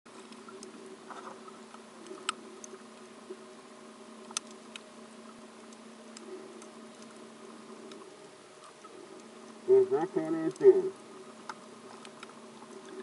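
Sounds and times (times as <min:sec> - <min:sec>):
low underwater hum: 0:00.1 - 0:13.0
sharp underwater clicks: 0:00.2 - 0:00.8, 0:01.7 - 0:03.1, 0:04.2 - 0:04.9, 0:11.4 - 0:13.0.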